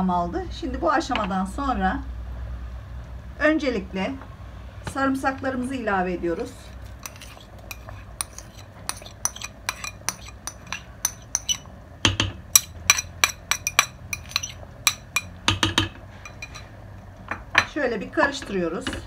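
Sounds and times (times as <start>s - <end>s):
metal spoon clinking on bowl: 7.0s - 16.7s.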